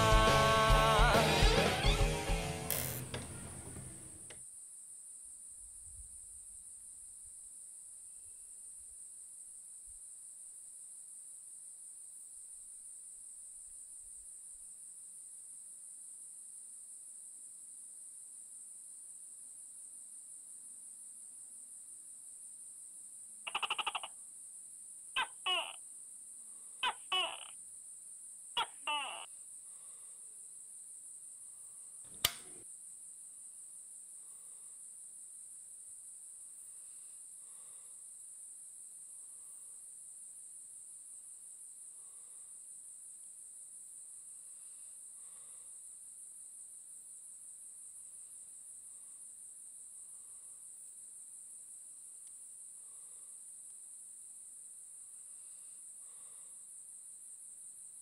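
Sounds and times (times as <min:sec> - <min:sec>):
crickets chirring: 0:02.7 - 0:58.0
sharp click: 0:32.1 - 0:32.6.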